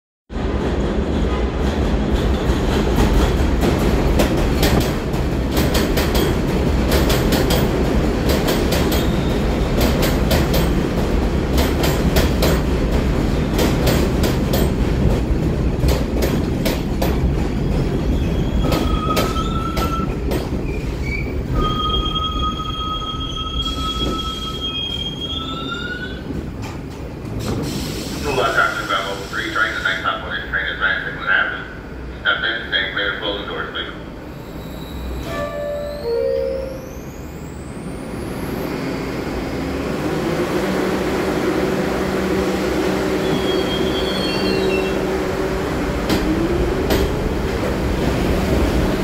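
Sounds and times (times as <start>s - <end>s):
subway train rumble: 0.3s - 49.0s
brake squealing tones: 18.2s - 26.3s, 34.4s - 38.8s, 43.2s - 45.0s.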